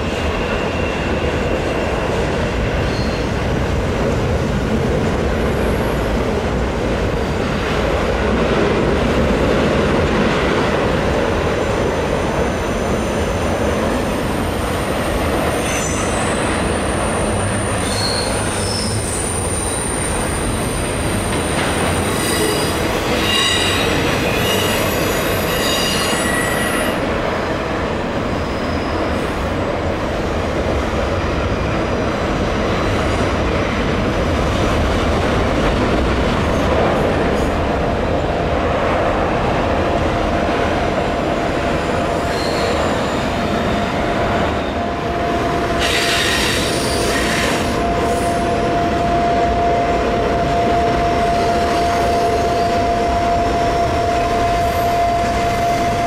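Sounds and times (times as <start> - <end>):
train wheels squealing: 0.0 - 3.5, 12.2 - 27.1, 28.3 - 29.5, 42.0 - 56.0
train wheels rumbling on rail: 0.0 - 56.0.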